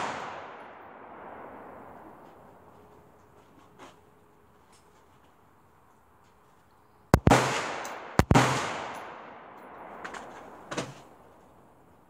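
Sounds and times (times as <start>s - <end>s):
rifle shots echoing: 0.0s - 2.2s, 7.1s - 11.4s.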